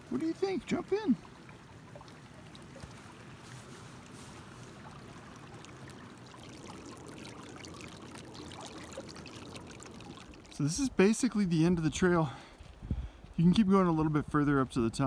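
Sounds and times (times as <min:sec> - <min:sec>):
water rushing over rocks: 0:00.0 - 0:11.2.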